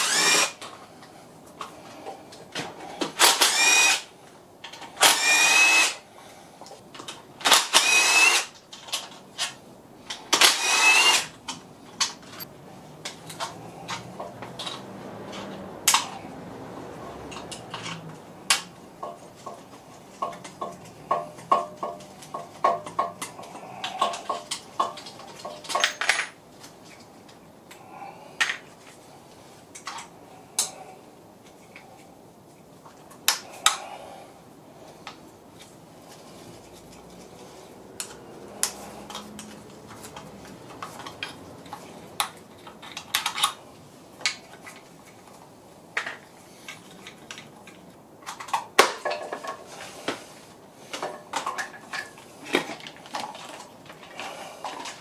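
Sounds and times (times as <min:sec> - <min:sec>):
cordless drill whining: 0:00.0 - 0:00.6, 0:03.2 - 0:04.1, 0:05.0 - 0:06.0, 0:07.5 - 0:08.5, 0:10.3 - 0:11.4
tools and metal parts clicking: 0:17.3 - 0:27.0.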